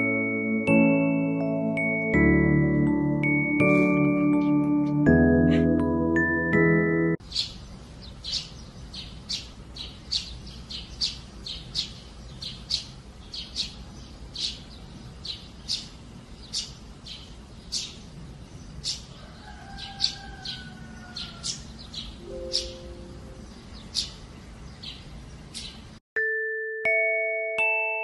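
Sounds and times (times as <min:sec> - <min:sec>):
sparrows chirping: 0:05.3 - 0:05.8, 0:07.2 - 0:26.0
low background noise: 0:07.2 - 0:26.0.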